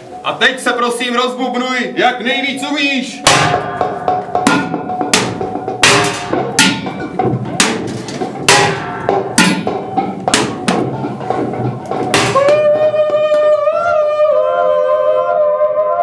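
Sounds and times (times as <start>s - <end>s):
drum beaten hard: 3.2s - 14.2s.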